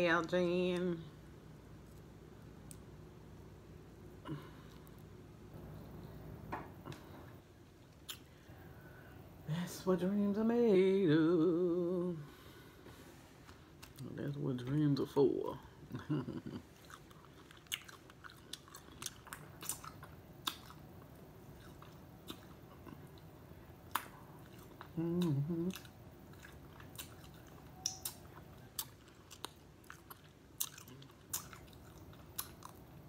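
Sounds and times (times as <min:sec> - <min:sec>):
chewing: 0:07.8 - 0:08.5, 0:16.0 - 0:33.0
person vocal sound: 0:24.8 - 0:25.9.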